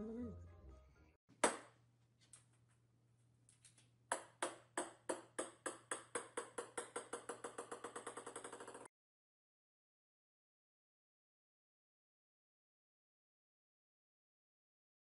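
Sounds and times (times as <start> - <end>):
plastic ball bouncing on wooden floor: 4.1 - 8.9.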